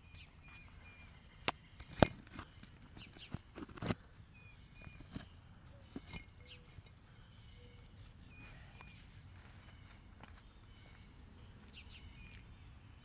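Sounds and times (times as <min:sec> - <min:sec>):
bird chirping: 0:00.0 - 0:13.0
footsteps: 0:08.4 - 0:11.0.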